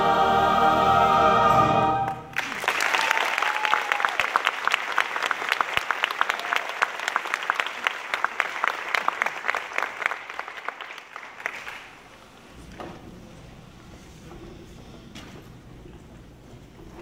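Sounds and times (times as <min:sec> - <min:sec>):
audience applauding: 0:02.0 - 0:12.2.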